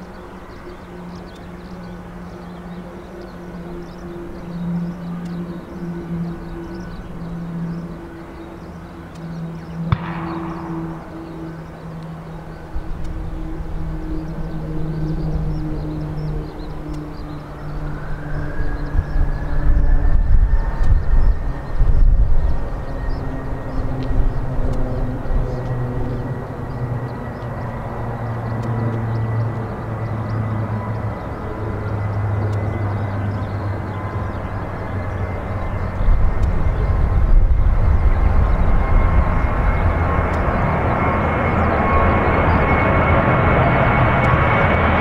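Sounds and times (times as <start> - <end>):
distant jet engines droning: 0.0 - 45.0
sharp click: 9.9 - 12.1.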